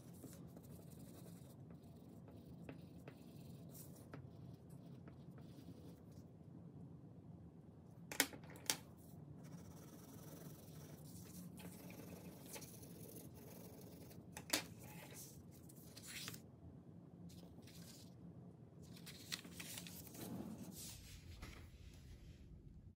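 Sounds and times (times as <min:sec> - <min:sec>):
paper rustling and sliding: 0:18.8 - 0:22.3.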